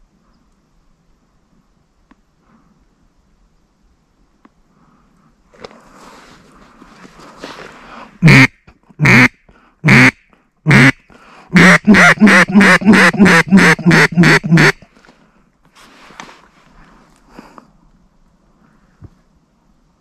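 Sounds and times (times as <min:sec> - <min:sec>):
duck call quacking: 0:08.2 - 0:14.9.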